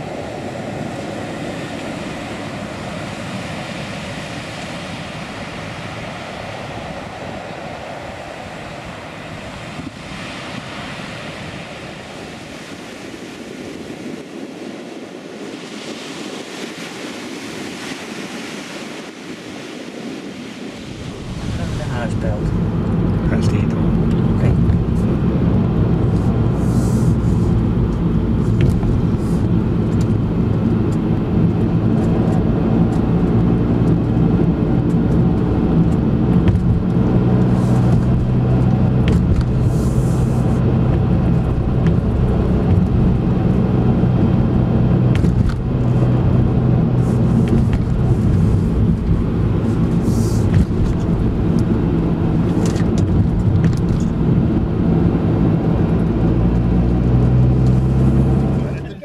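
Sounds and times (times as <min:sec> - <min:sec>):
car engine and tyre drone: 0:19.0 - 0:59.0.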